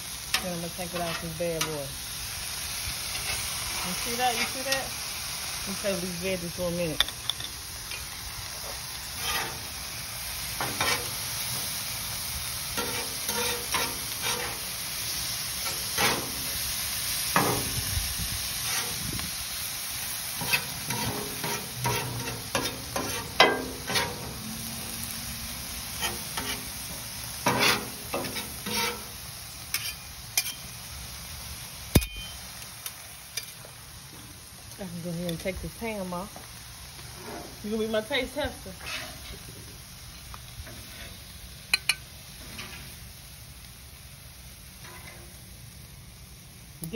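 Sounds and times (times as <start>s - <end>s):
food sizzling on hot plate: 0.0s - 46.9s
metal spatulas scraping on griddle: 0.3s - 1.9s, 3.0s - 5.0s, 7.0s - 9.8s, 10.5s - 11.8s, 12.7s - 15.0s, 15.6s - 17.8s, 18.5s - 19.3s, 20.3s - 24.9s, 25.8s - 30.7s, 37.1s - 38.0s, 38.6s - 39.5s, 40.6s - 43.0s, 44.8s - 45.4s.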